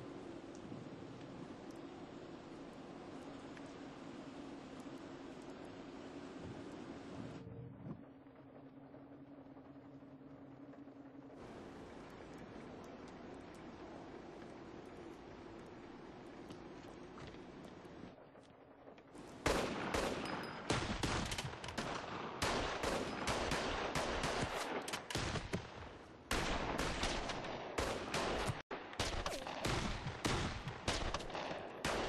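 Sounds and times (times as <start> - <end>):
rapid gunfire: 19.4 - 32.0.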